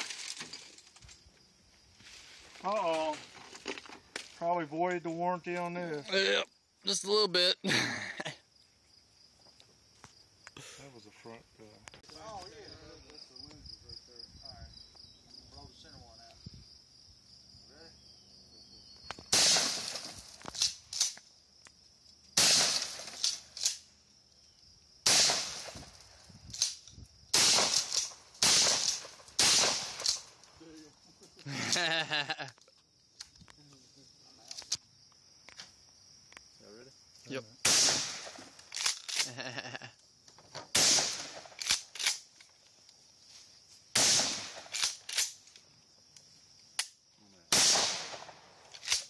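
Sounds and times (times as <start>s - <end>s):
faint gunshot cracks: 19.3s - 20.2s, 22.4s - 23.8s, 25.1s - 25.9s, 27.4s - 30.2s, 37.6s - 38.5s, 40.7s - 41.8s, 44.0s - 45.0s, 47.5s - 49.0s
loud gunshots with echo: 47.5s - 48.3s.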